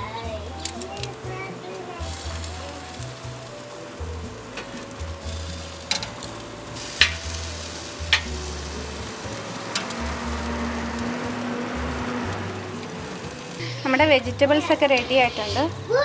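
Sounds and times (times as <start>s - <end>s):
chicken sizzling on a grill: 0.0s - 16.0s
soft background music: 0.0s - 16.0s
tongs clicking on a grate: 0.6s - 1.2s, 2.1s - 11.6s.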